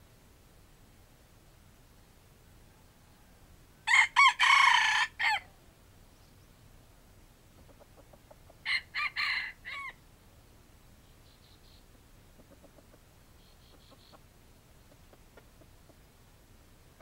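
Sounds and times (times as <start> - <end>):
rooster crowing: 2.7 - 5.5, 8.6 - 10.0.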